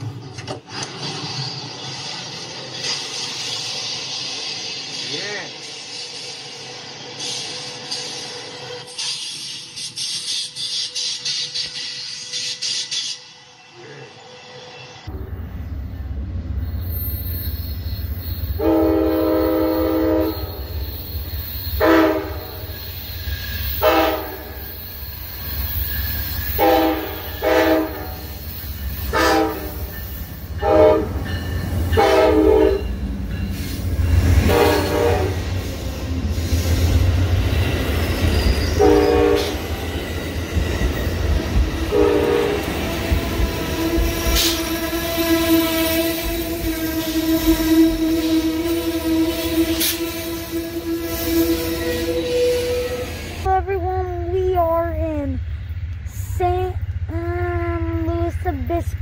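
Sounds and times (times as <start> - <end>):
train wheels squealing: 1.5 - 15.1, 16.6 - 53.5
locomotive horn blasts: 18.6 - 20.7, 21.8 - 22.6, 23.8 - 24.6, 26.6 - 28.3, 29.1 - 29.9, 30.6 - 31.2, 31.9 - 32.9, 34.4 - 35.5, 38.8 - 39.6, 41.9 - 42.7, 43.8 - 53.0.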